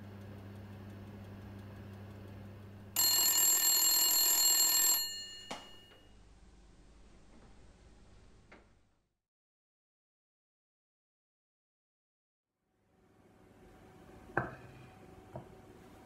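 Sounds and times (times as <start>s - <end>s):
oven humming: 0.0s - 3.0s
oven timer bell ringing: 3.0s - 6.2s.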